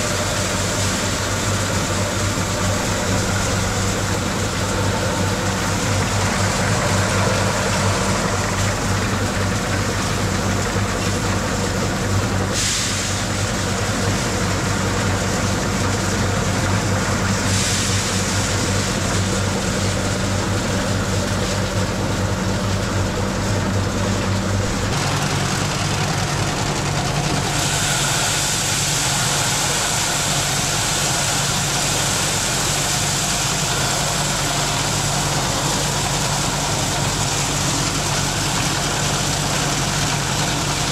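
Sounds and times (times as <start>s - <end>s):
machine engine humming: 0.0s - 40.9s.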